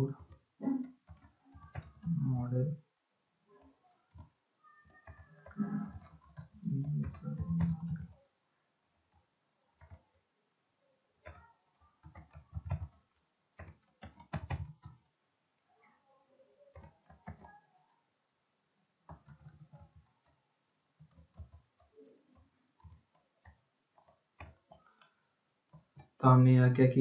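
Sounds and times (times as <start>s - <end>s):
computer keyboard typing: 0.1s - 2.1s, 3.6s - 8.2s, 9.8s - 10.2s, 11.2s - 15.1s, 16.7s - 17.7s, 19.1s - 20.4s, 21.0s - 26.2s.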